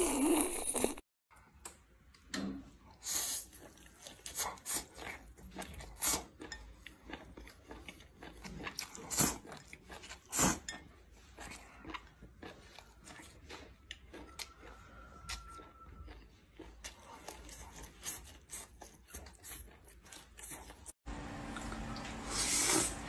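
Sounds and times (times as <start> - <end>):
man slurping and chewing: 0.0 - 1.0, 3.2 - 14.8.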